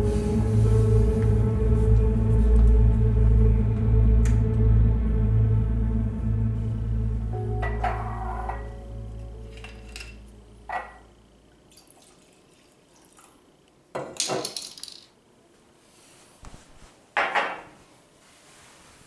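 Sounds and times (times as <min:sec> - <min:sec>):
glass clinking: 0:09.5 - 0:11.1.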